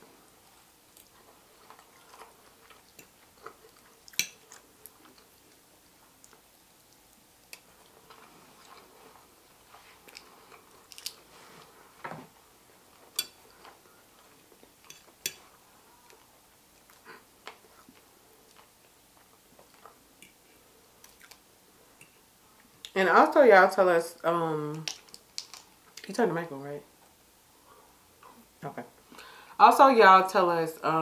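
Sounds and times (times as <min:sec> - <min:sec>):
chewing: 0:00.5 - 0:11.8, 0:12.9 - 0:22.9.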